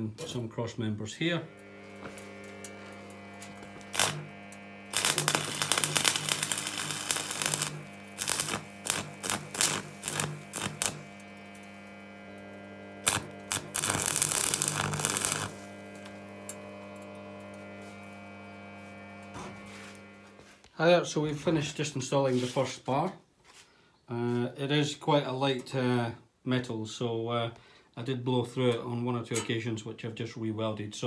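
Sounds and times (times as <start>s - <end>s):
steady electrical hum: 0.0s - 23.0s
welding arc crackling: 1.2s - 20.6s.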